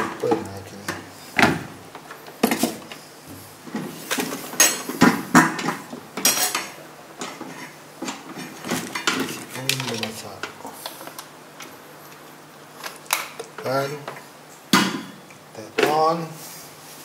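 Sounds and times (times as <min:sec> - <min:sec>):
plastic containers and utensils clinking: 0:03.7 - 0:11.2.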